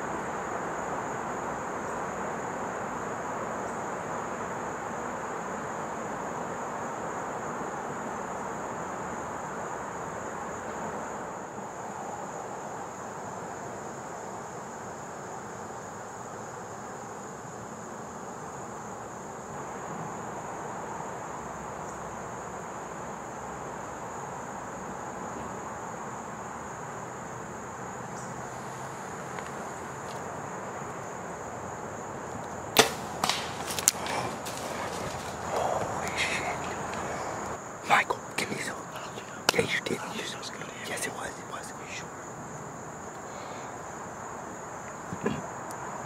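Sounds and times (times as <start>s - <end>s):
high insect drone: 0.0s - 46.0s
bow shot crack: 32.7s - 36.0s
deer running through leaves: 32.8s - 37.4s.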